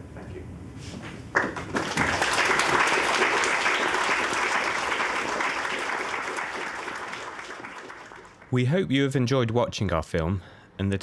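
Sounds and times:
audience applauding: 0:01.4 - 0:08.5.

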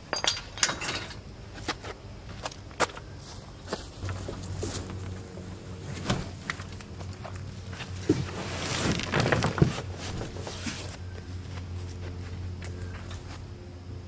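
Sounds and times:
rustling scrape through grass: 0:03.8 - 0:06.9, 0:07.7 - 0:11.0.

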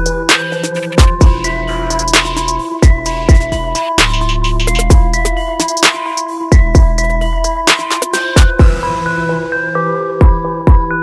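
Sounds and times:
electronic music: 0:00.0 - 0:11.0
deep kick drums: 0:02.8 - 0:03.8, 0:04.7 - 0:05.3, 0:06.5 - 0:07.1, 0:08.4 - 0:09.1.

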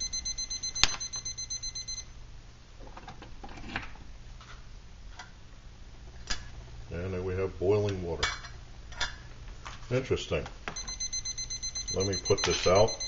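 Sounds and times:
thermometer alarm beeping: 0:00.0 - 0:02.1, 0:10.8 - 0:13.0.

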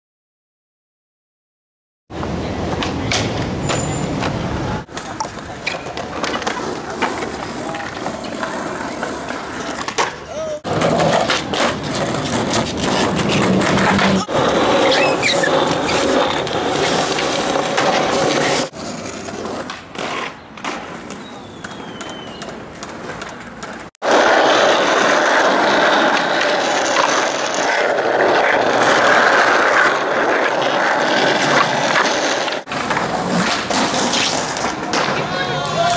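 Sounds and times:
skateboard knocking and scraping: 0:02.1 - 0:35.9
skateboard wheels rolling on concrete: 0:02.1 - 0:35.9.

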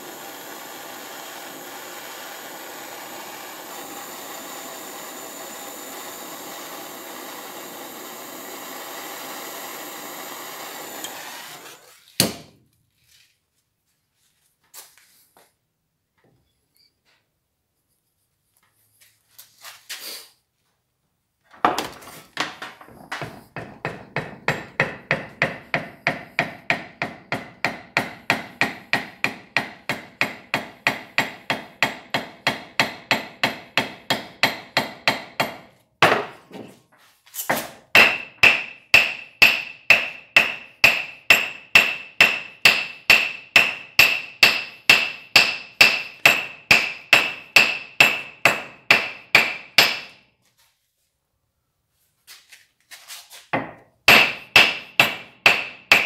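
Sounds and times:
hammering handle onto file: 0:12.2 - 0:12.5, 0:21.7 - 0:36.6, 0:37.5 - 0:50.2, 0:53.5 - 0:56.0.

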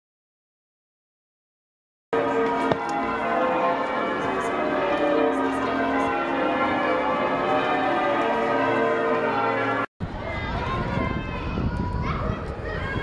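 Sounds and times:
church bells ringing: 0:02.2 - 0:09.9.

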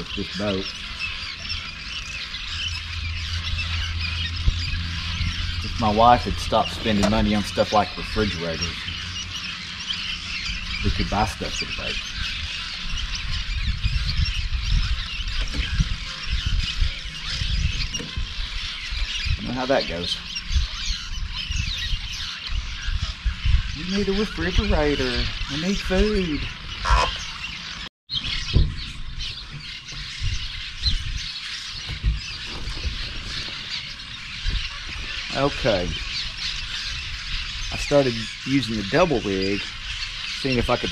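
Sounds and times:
birds chirping and squeaking: 0:00.0 - 0:40.9
wind rumble on microphone: 0:00.0 - 0:40.9
low thumps: 0:02.6 - 0:09.3, 0:28.4 - 0:36.4.

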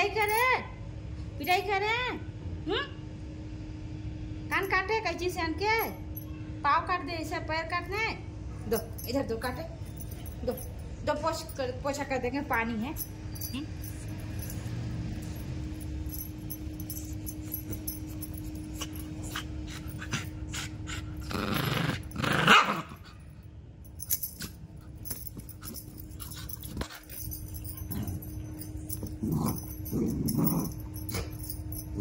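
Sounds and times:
dog growling and barking: 0:16.1 - 0:23.2, 0:24.1 - 0:32.0.

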